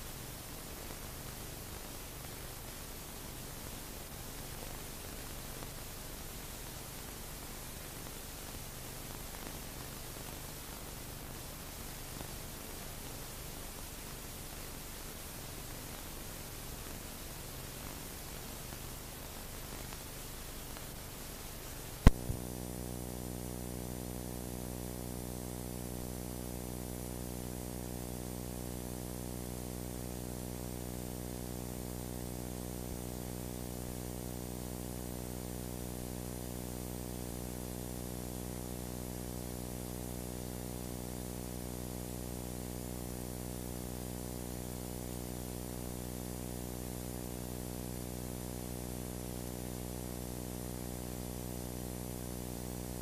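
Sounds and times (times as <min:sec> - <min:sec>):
electrical hum: 0:21.6 - 0:34.2.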